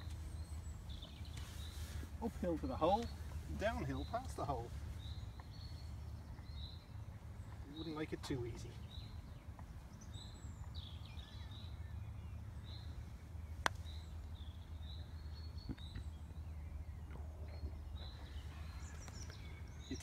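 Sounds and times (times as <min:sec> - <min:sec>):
low outdoor rumble: 0:00.0 - 0:20.0
small bird chirping: 0:00.0 - 0:20.0.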